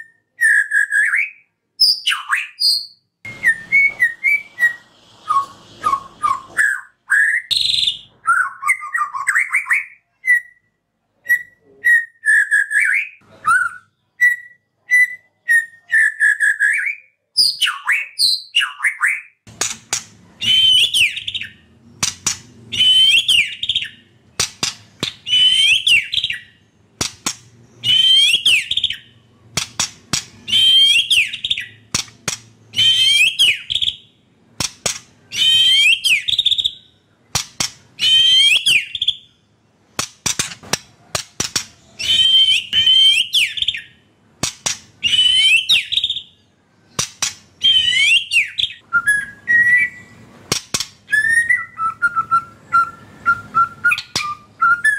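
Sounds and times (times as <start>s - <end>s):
bird singing whistled phrases: 0.0s - 19.4s, 20.4s - 21.6s, 22.7s - 24.0s, 25.1s - 26.6s, 27.8s - 29.2s, 30.4s - 31.8s, 32.7s - 34.1s, 35.3s - 37.0s, 38.0s - 39.3s, 42.0s - 44.0s, 45.0s - 46.4s, 47.6s - 50.2s, 51.1s - 54.9s.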